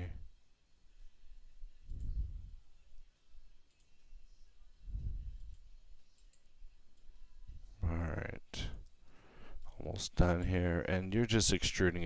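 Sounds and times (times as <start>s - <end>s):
soft low rumbles: 1.7s - 2.7s, 4.8s - 5.6s.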